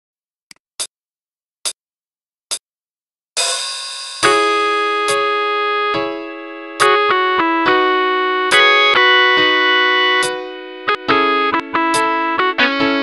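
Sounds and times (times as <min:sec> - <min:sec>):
cymbal-like crash: 0:03.4 - 0:04.4
sustained keyboard chord: 0:04.2 - 0:13.0.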